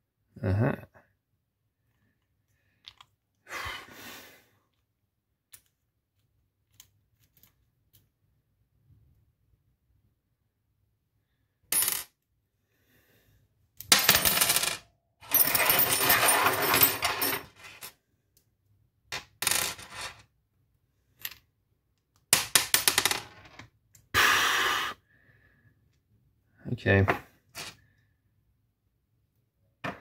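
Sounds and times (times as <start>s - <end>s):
metal parts clinking on countertop: 13.9s - 17.8s.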